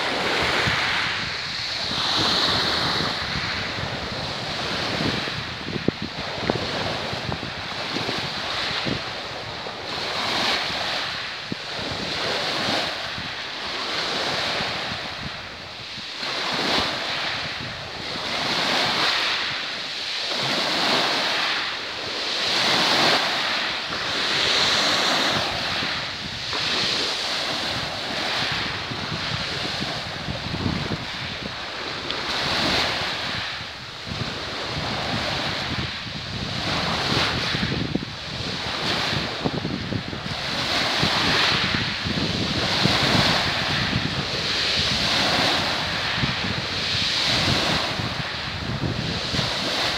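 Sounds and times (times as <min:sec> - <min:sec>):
small waves splashing: 0:00.0 - 0:49.9
wind gusting on microphone: 0:00.0 - 0:49.9.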